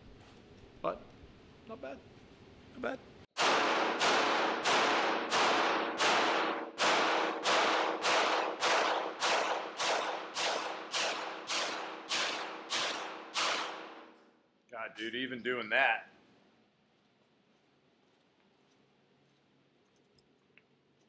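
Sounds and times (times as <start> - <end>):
pistol shots with echo: 3.4 - 14.1.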